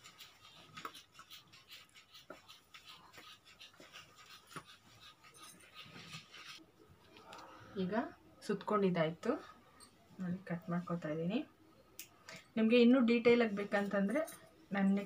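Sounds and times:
thread winding around cardboard: 0.0 - 6.6.

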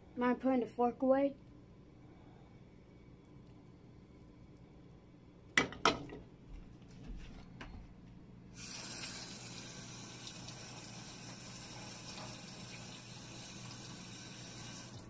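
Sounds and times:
faucet water running into sink: 8.6 - 15.0.

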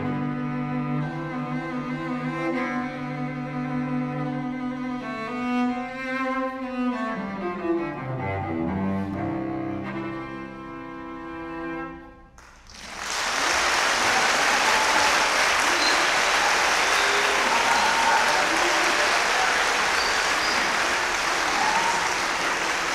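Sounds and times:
audience applause: 12.4 - 22.9.

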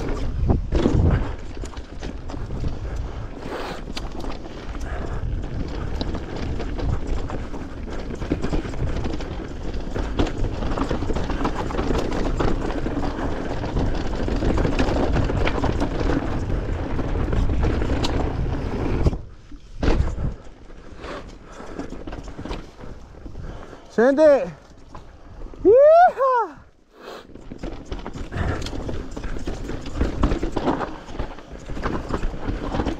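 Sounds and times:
chain and frame rattles: 0.0 - 18.7, 27.3 - 32.9
wind buffeting microphone: 0.0 - 20.5
tyre and trail noise: 0.0 - 32.9.

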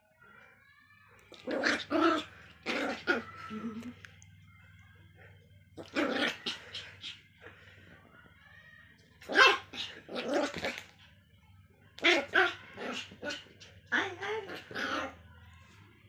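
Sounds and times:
small dog barking: 9.2 - 10.8.

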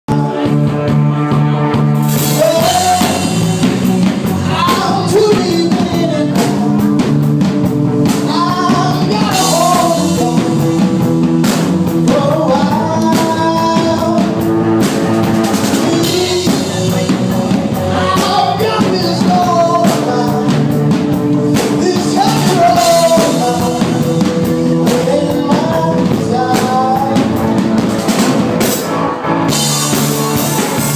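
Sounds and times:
bass guitar: 0.0 - 30.9
man singing into a microphone: 0.1 - 0.9, 2.1 - 7.2, 8.0 - 11.2, 11.9 - 14.6, 15.5 - 28.1
drum kit: 0.1 - 30.9.

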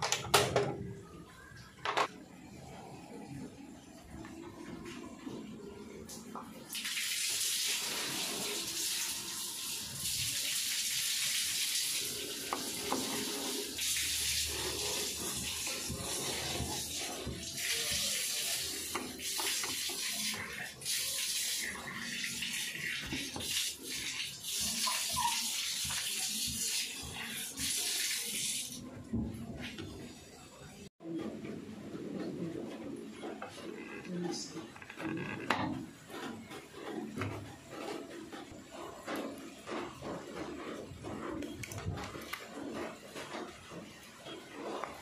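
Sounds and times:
water rushing into washing machine: 6.7 - 29.4.

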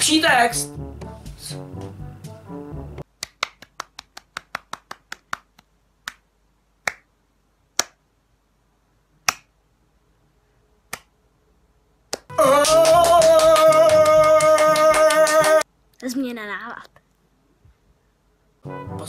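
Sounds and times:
sharp hand claps: 3.1 - 6.2, 6.8 - 7.1, 7.8 - 8.0, 9.3 - 9.5, 10.9 - 11.1, 12.1 - 15.6.

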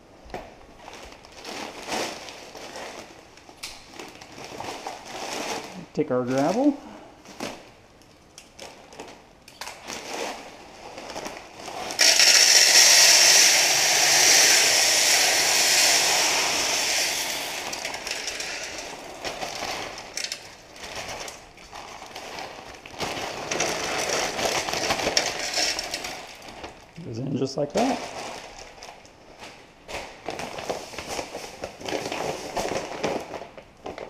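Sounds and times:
plastic bag crinkling: 0.5 - 34.0
gravel pouring through a funnel: 11.1 - 27.2.

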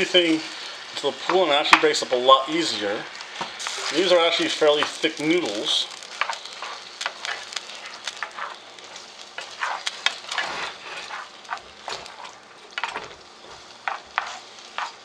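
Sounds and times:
noodles sizzling in a skillet: 0.0 - 15.0
spatula scraping and knocking pan: 6.1 - 15.0.

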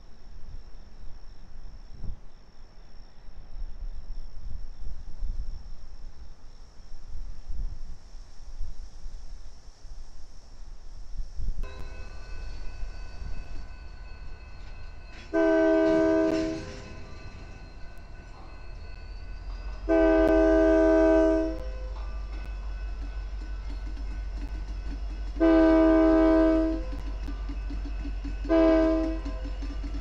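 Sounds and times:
locomotive air horn blasts: 15.1 - 17.0, 19.8 - 22.0, 25.3 - 27.0, 28.4 - 29.5.

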